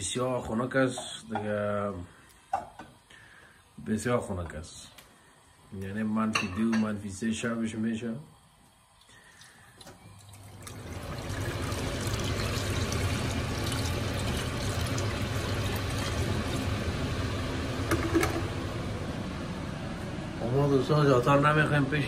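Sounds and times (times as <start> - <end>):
water pouring into saucepan: 9.0 - 18.5.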